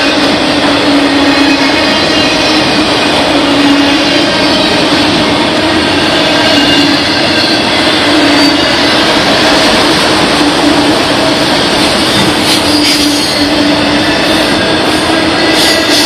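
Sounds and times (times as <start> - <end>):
train wheels running on rails: 0.0 - 16.0.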